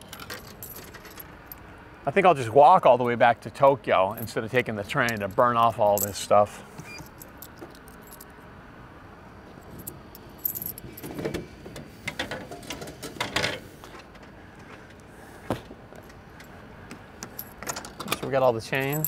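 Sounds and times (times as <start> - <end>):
coins clinking: 0.0 - 1.6, 7.0 - 8.3, 9.7 - 11.0, 18.8 - 19.0.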